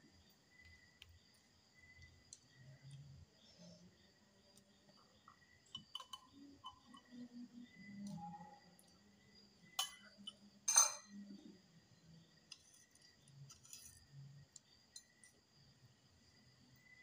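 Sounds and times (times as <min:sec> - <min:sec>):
dishware clicking and clinking: 0:10.7 - 0:11.1.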